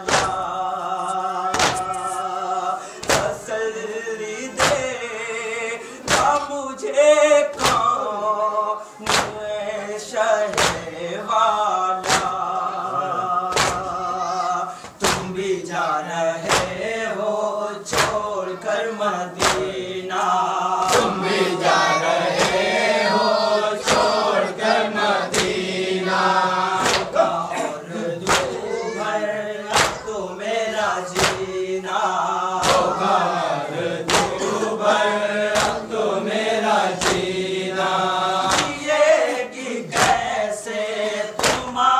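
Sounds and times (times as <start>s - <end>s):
men chanting in chorus: 0.0s - 41.9s
steady beat of sharp strokes: 14.7s - 15.7s, 20.8s - 28.7s, 32.6s - 40.4s.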